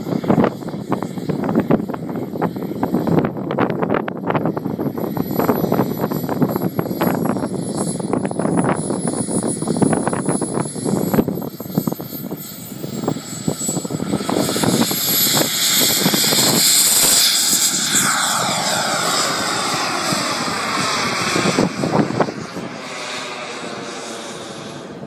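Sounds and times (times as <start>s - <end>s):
model jet turbine whine: 0.0s - 25.0s.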